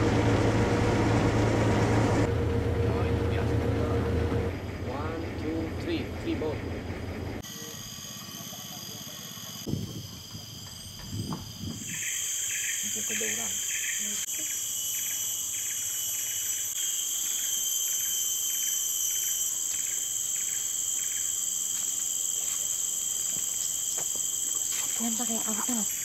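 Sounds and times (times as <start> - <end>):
pulsing insect call: 2.2 - 26.0
high-pitched insect drone: 7.4 - 26.0.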